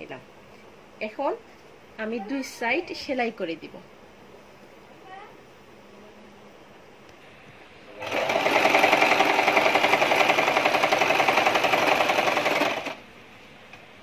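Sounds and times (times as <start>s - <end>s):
sewing machine stitching: 8.0s - 13.0s.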